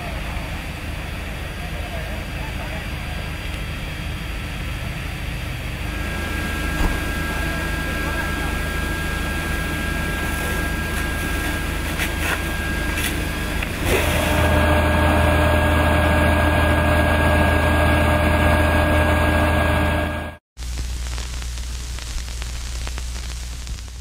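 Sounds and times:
fire truck engine running: 0:00.0 - 0:20.4.

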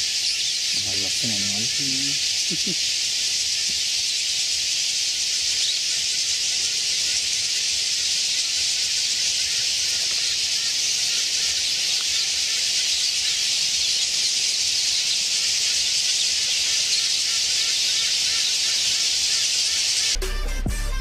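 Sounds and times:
flock of small birds chattering: 0:00.0 - 0:20.2.

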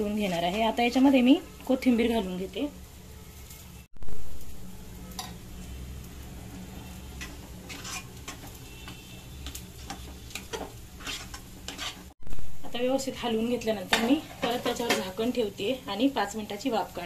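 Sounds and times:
metal spatula scraping pan: 0:00.0 - 0:01.1, 0:06.8 - 0:12.2, 0:13.6 - 0:15.3.

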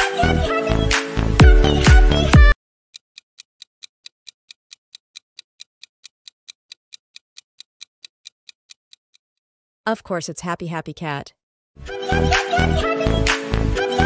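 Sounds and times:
music clip: 0:00.0 - 0:02.6, 0:11.8 - 0:14.0
fast clock ticking: 0:03.2 - 0:09.2.

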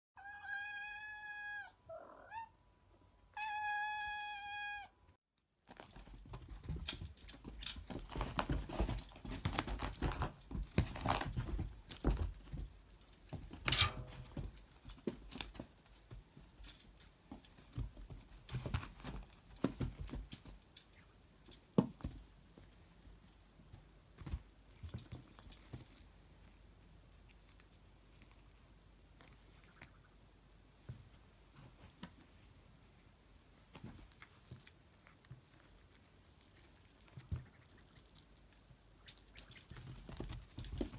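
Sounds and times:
cat toy rattling and jingling: 0:05.4 - 0:22.3, 0:24.2 - 0:28.6, 0:33.4 - 0:40.9.

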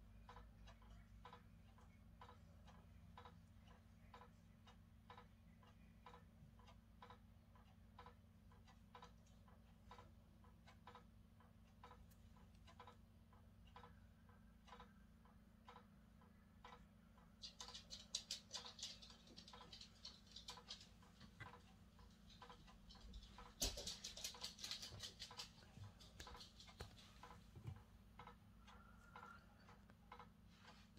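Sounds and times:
clock ticking: 0:00.0 - 0:30.9
rustling and clatter of objects: 0:17.4 - 0:27.8.

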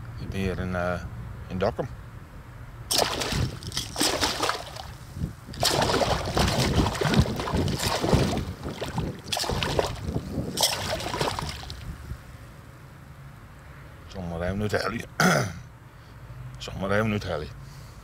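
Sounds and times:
fish splashing at the surface: 0:02.9 - 0:05.0, 0:05.6 - 0:12.0.

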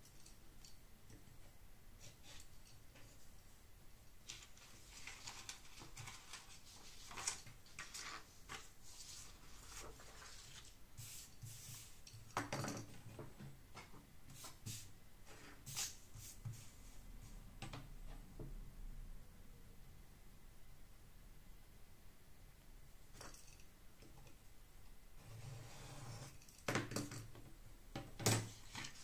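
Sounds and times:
paper rustling: 0:04.2 - 0:12.0.

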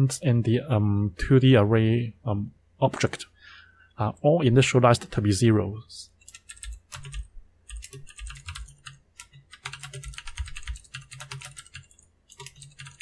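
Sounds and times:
typing on computer keyboard: 0:06.2 - 0:13.0.

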